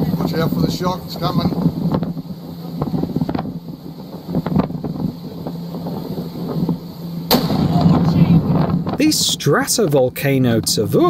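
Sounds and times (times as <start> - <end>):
wind on microphone: 0.0 - 9.7
boat motor humming: 0.0 - 11.0
loud eruption boom: 7.3 - 9.4.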